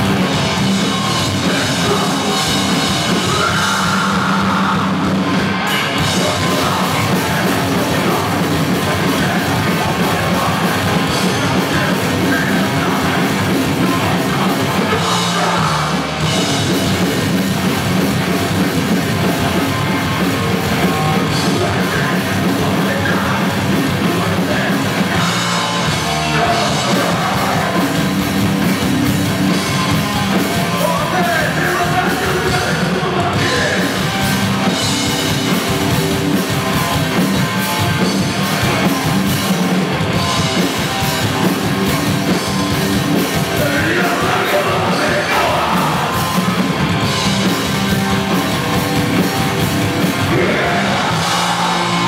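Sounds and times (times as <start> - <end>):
bass: 0.0 - 52.0
distorted electric guitars: 0.0 - 52.0
drums: 0.0 - 52.0
vocalist shouting: 50.3 - 52.0.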